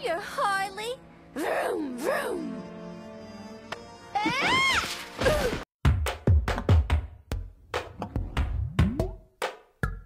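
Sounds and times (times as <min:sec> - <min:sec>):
woman's cartoon yelp: 0:04.2 - 0:04.9.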